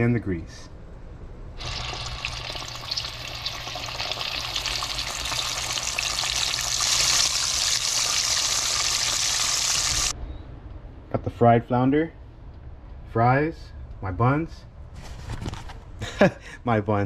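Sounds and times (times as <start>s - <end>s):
fish sizzling in hot oil: 1.6s - 10.1s.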